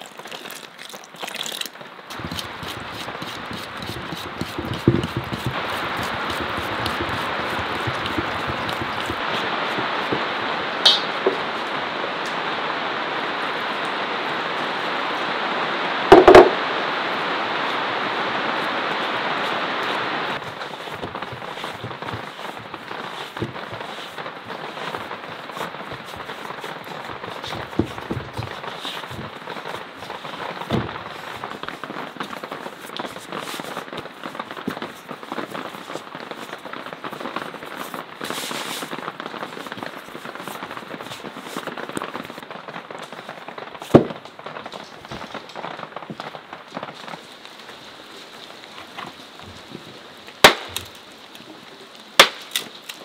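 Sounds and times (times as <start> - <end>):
hands kneading dough: 0.2 - 10.3, 19.8 - 33.8
sharp knock: 16.1 - 16.6.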